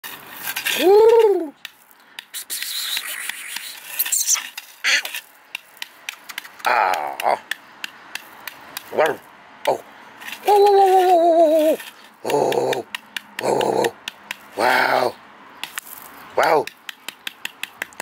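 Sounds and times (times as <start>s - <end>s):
soft voice sounds: 0.7s - 1.6s, 8.9s - 14.0s
puppy squeaks: 2.5s - 5.2s.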